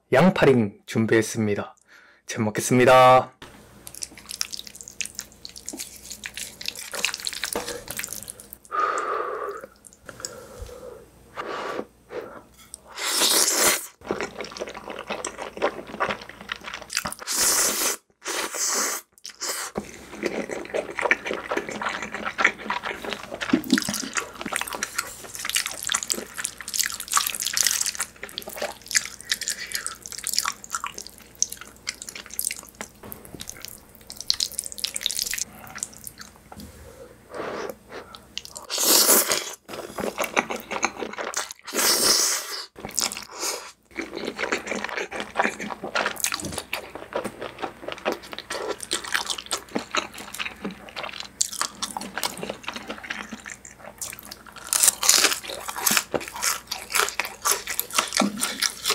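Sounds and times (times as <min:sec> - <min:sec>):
wet chewing and mouth smacks: 0:03.8 - 0:08.7, 0:20.2 - 0:36.4, 0:43.9 - 0:58.9.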